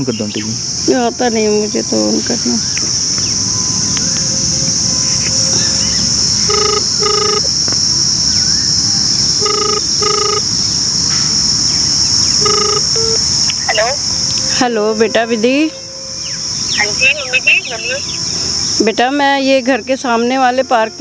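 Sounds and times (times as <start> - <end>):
high insect drone: 0.0 - 21.0
telephone ringback beeps: 6.4 - 7.5, 9.4 - 10.5, 12.4 - 13.2.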